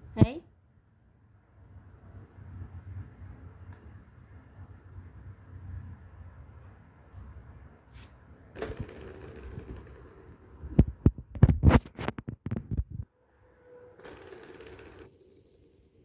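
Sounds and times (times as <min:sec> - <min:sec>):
plastic cat toy rattling: 0:08.6 - 0:10.7, 0:14.0 - 0:16.0.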